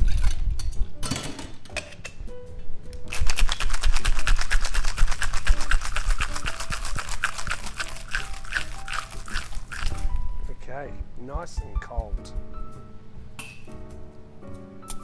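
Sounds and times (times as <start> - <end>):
ice rattling in cocktail shaker: 3.1 - 10.1.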